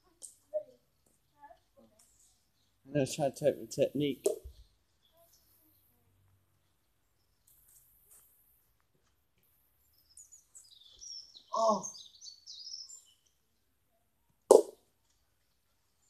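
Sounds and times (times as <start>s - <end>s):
birds chirping: 0.4s - 16.0s
bat striking a ball: 14.5s - 14.8s.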